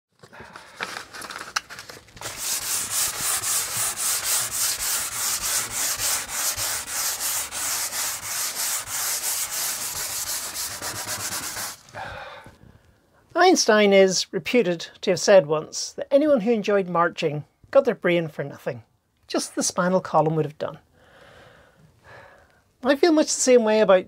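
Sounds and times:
sandpaper rubbing on wood: 2.2s - 11.9s.

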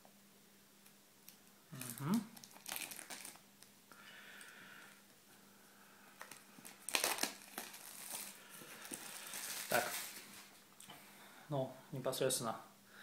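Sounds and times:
plastic film crinkling: 1.7s - 3.4s, 6.2s - 10.6s.

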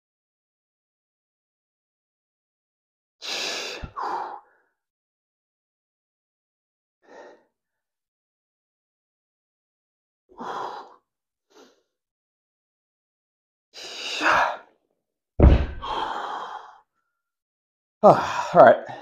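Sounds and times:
dull thud: 15.4s - 16.0s
heavy sighing exhales: 15.7s - 16.6s.

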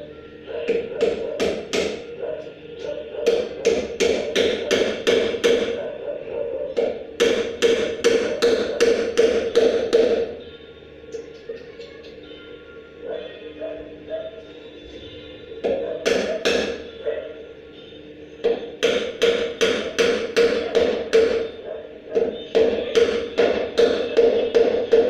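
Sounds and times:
hammer striking wood: 0.7s - 2.0s, 3.2s - 5.8s, 6.8s - 10.3s, 15.6s - 16.8s, 18.4s - 21.5s, 22.1s - 25.0s.

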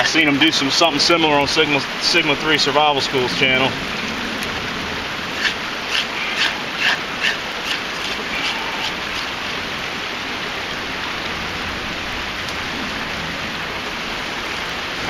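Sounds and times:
creek running: 0.0s - 15.0s
knife scraping bark: 5.3s - 9.5s.

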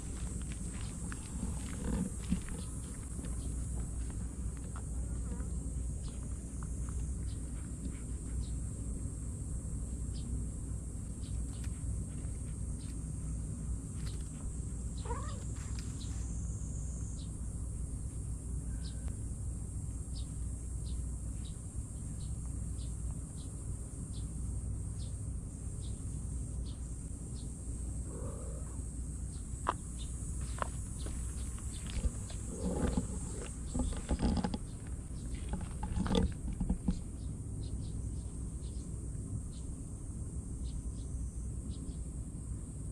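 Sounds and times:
kitten mewing: 15.0s - 15.5s, 28.1s - 28.8s.

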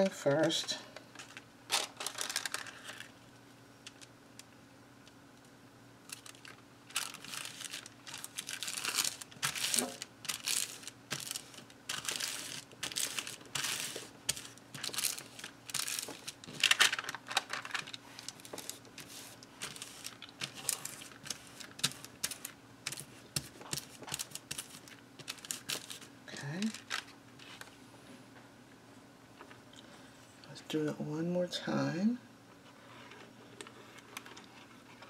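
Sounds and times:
paper rustling and crinkling: 1.2s - 3.2s, 6.1s - 27.8s.

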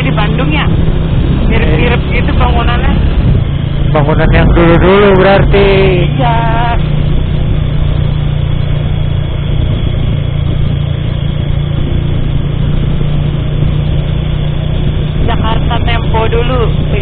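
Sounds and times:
motorcycle engine cruising: 0.0s - 17.0s
road and wind noise: 0.0s - 17.0s.

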